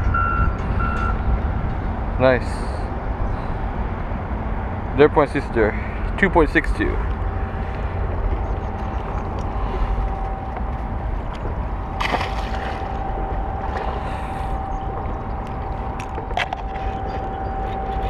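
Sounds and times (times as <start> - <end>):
faint hum: 0.0 - 18.0
road traffic rumble: 0.0 - 18.0
wind on microphone: 7.0 - 18.0.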